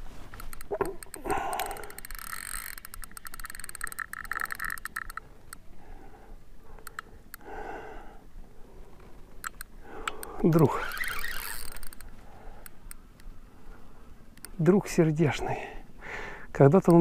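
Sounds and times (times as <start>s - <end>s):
fishing reel ticking: 0.4s - 5.6s, 9.4s - 13.0s.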